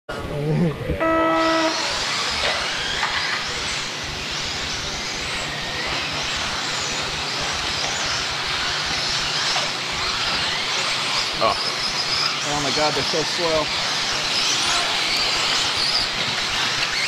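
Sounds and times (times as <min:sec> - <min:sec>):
rc buggy tyre noise: 0:00.1 - 0:17.0
rc buggies motor whine: 0:01.0 - 0:17.0.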